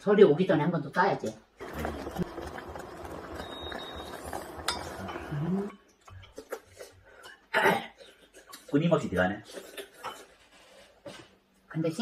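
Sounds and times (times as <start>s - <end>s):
utensils clinking on bowls: 3.3s - 5.3s
wooden spoon scraping a pot: 8.0s - 11.4s.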